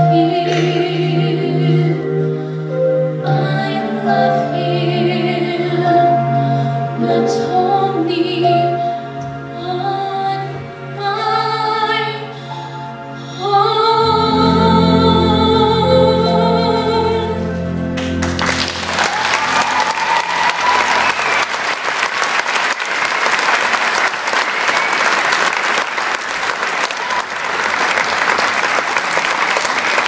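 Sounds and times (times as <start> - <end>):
audience applauding: 18.0 - 30.0.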